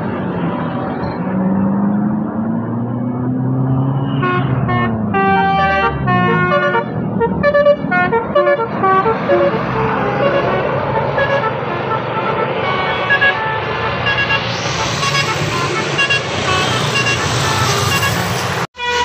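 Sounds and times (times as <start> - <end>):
bus passing: 0.0 - 19.0
musical air horn melody: 4.0 - 19.0.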